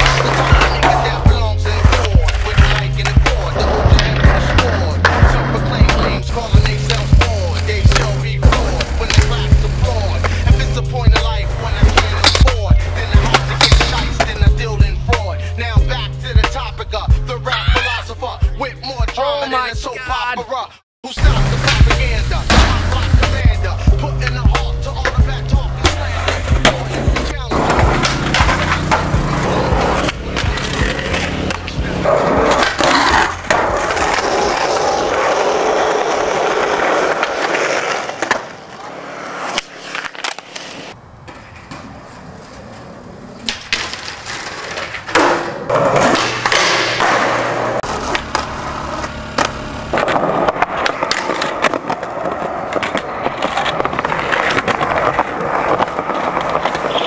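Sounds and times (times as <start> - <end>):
skateboard wheels rolling on concrete: 0.0 - 57.0
skateboard pops and tail slaps: 1.8 - 10.5, 11.1 - 14.4, 24.2 - 34.6, 43.4 - 57.0
music with low bassline: 21.2 - 32.4.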